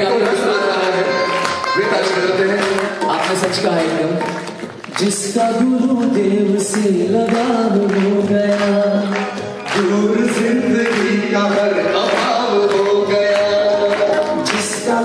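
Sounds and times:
devotional song singing: 0:00.0 - 0:15.0.

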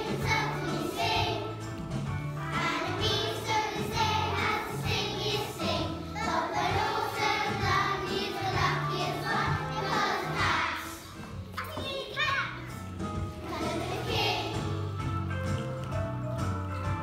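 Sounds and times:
children singing: 0:00.0 - 0:01.6, 0:02.4 - 0:11.3, 0:13.4 - 0:14.7
musical accompaniment with bass line: 0:12.6 - 0:17.0.

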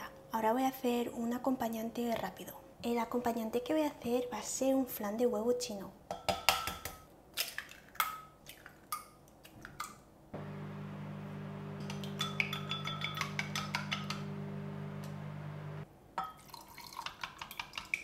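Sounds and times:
steady low hum: 0:10.4 - 0:15.8
chopsticks beating eggs in glass: 0:12.2 - 0:14.1.

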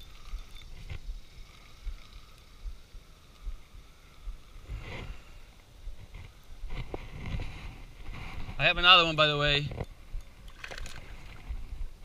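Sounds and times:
wind rumbling on microphone: 0:00.0 - 0:12.0
microphone handling rustle: 0:04.6 - 0:12.0.

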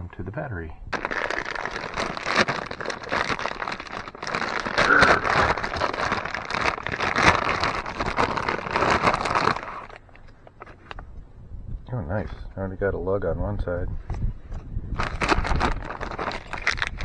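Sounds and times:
plastic bag crinkling: 0:00.9 - 0:10.9, 0:15.0 - 0:17.0.

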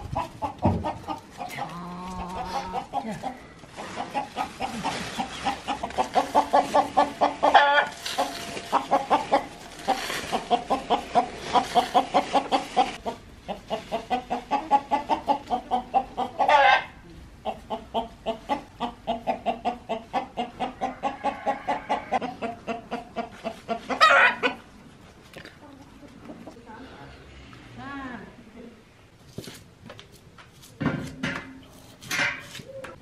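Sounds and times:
hens clucking: 0:00.0 - 0:24.8.

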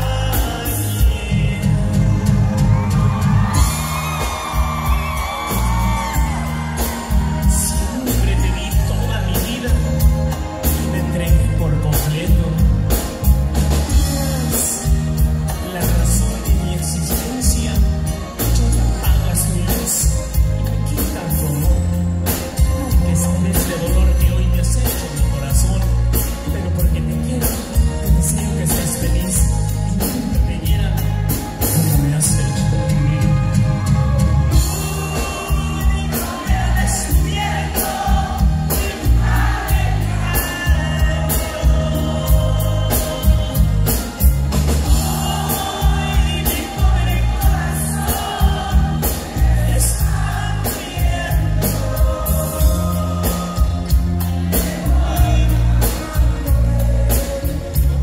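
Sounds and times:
live band playing: 0:00.0 - 0:58.0
steady drum beats: 0:00.0 - 0:58.0
person singing: 0:13.9 - 0:58.0.

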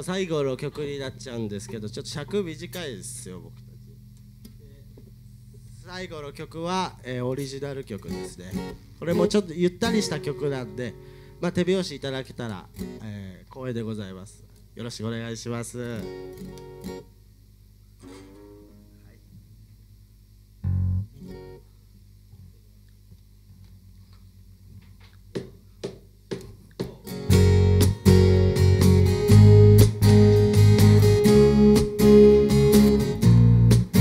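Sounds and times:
acoustic guitars and bass strumming: 0:00.0 - 0:05.7, 0:07.3 - 0:13.2, 0:15.8 - 0:17.1, 0:18.0 - 0:19.0, 0:20.6 - 0:21.6, 0:26.3 - 0:34.0.

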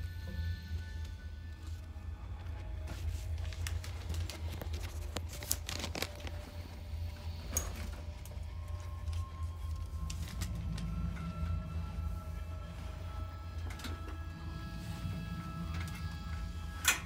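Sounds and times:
steady low hum: 0:00.0 - 0:17.0
bag rustling: 0:02.8 - 0:11.2.

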